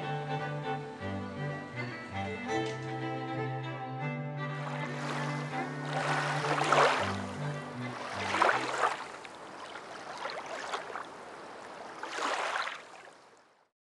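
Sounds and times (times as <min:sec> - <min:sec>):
low string music: 0:00.0 - 0:09.2
rushing water-like noise: 0:04.5 - 0:13.7.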